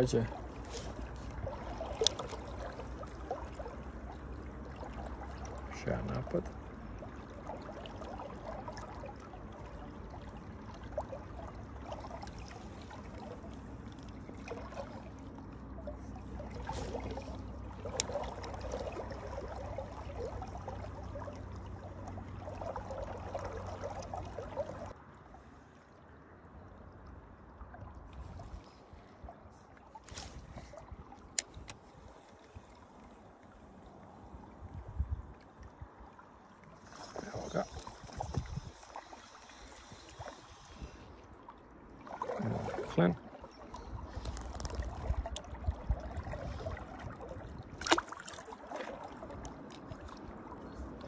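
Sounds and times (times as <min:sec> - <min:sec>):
river water rushing and splashing: 0:00.0 - 0:25.2, 0:35.9 - 0:51.0.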